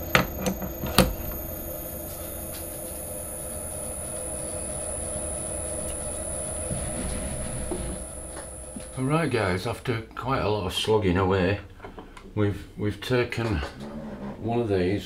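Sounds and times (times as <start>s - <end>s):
metal lathe humming and whining: 0.0s - 9.8s.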